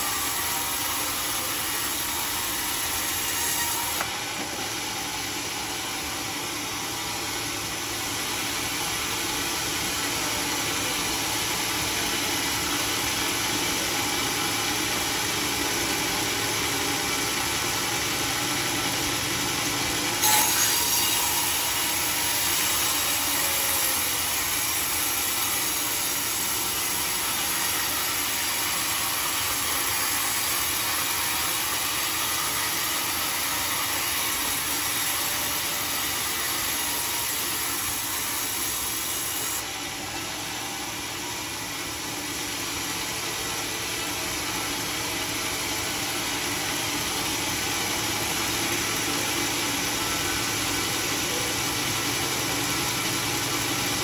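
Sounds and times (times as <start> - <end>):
band saw sawing wood: 0.0 - 6.0, 20.2 - 40.1.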